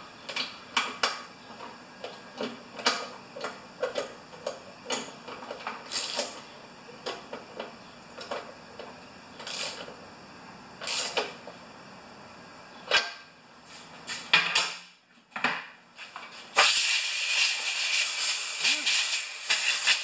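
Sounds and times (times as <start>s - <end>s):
tools clicking and knocking: 0.3s - 6.4s.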